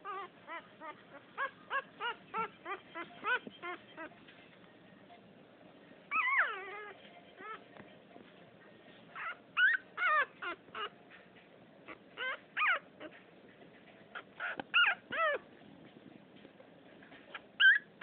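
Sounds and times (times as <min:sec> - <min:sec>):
puppy whimpering: 0:00.0 - 0:04.2, 0:06.1 - 0:07.7, 0:09.2 - 0:11.0, 0:11.9 - 0:13.3, 0:14.1 - 0:15.5, 0:17.2 - 0:18.0.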